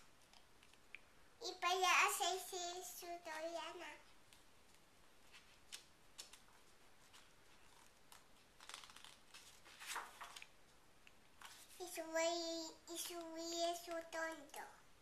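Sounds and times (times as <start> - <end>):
young child's voice: 1.4 - 4.1, 11.8 - 14.9
book pages rustling: 3.9 - 11.9, 13.0 - 14.4.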